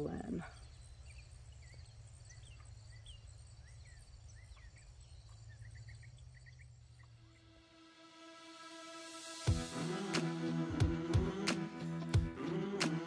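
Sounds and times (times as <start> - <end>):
bird chirps: 0.0 - 7.5
insects chirring: 0.0 - 8.1.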